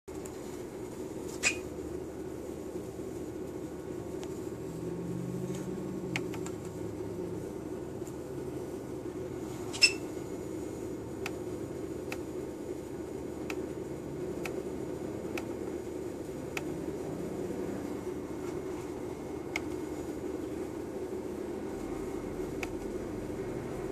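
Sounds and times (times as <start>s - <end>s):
steady low hum: 0.1s - 23.9s.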